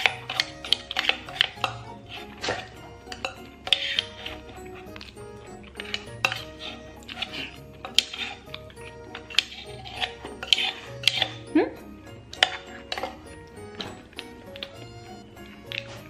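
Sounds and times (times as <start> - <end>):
spoon scraping box: 0.0 - 11.5.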